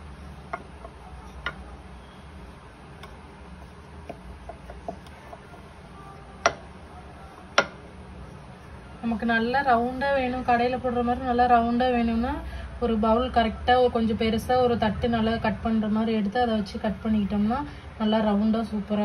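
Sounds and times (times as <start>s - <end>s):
rolling pin tapping board: 4.0s - 5.5s, 6.4s - 6.7s, 7.6s - 7.8s.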